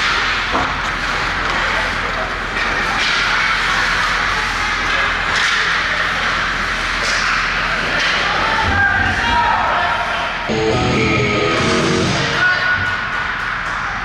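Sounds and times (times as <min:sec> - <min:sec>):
skate scrapes and stick clacks: 0:02.6 - 0:08.4.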